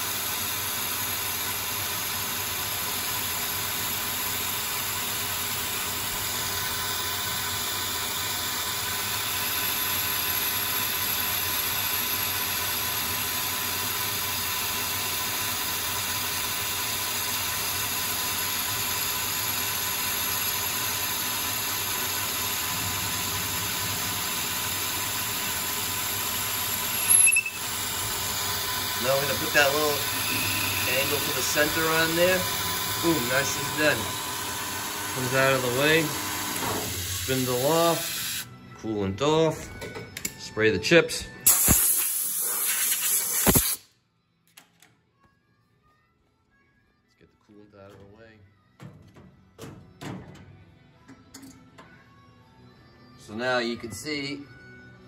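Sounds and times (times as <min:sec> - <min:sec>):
lathe machining metal: 0:00.0 - 0:38.4
boring bar cutting metal: 0:18.3 - 0:38.4
hiss of coolant spray: 0:41.5 - 0:43.9.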